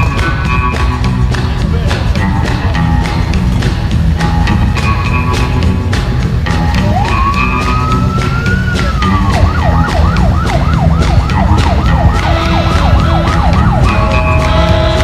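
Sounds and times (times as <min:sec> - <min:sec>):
siren wailing and yelping: 0:06.8 - 0:15.0.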